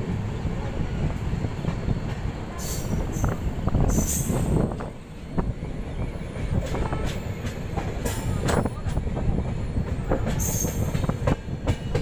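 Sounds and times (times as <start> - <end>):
train wheels rumbling on rails: 0.0 - 12.0
wind on microphone: 0.3 - 7.3.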